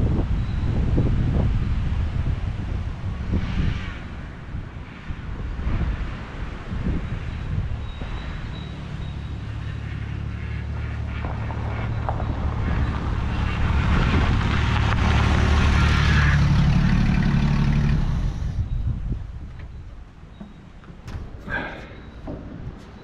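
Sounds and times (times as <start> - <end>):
car engine driving past: 8.1 - 18.8
tyres on gravel: 9.1 - 18.6.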